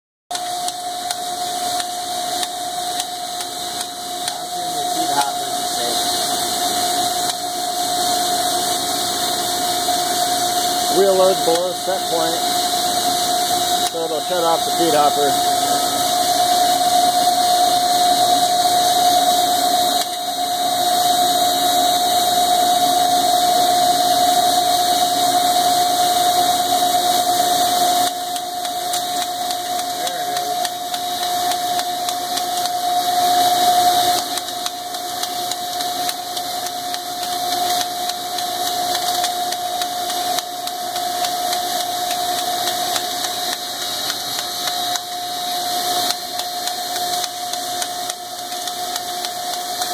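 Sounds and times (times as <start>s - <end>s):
grinder whining: 0.3s - 49.9s
hiss of grinding and coolant: 0.4s - 49.9s.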